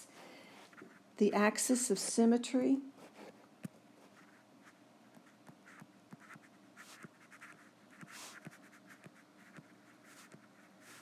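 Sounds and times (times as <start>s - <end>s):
stylus tapping and scratching screen: 3.0s - 11.0s.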